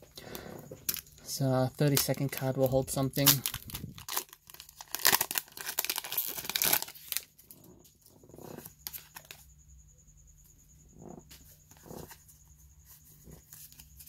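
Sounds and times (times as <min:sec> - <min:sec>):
foil pack tearing and crinkling: 0:01.8 - 0:07.5
faint handling sounds: 0:10.9 - 0:14.0.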